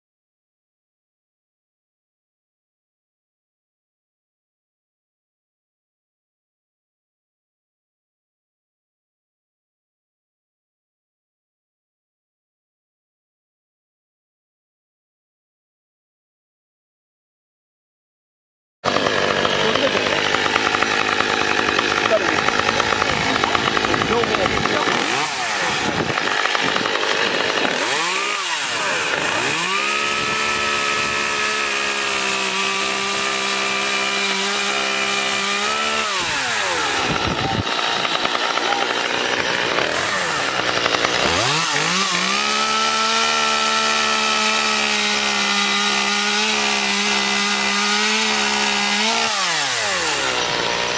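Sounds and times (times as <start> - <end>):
chainsaw revving: 18.8 - 50.9
chainsaw sawing into log: 18.8 - 50.9.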